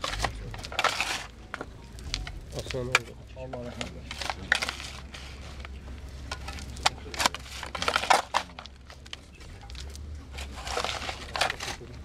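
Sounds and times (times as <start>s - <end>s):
shovel digging loose soil: 10.3s - 12.0s.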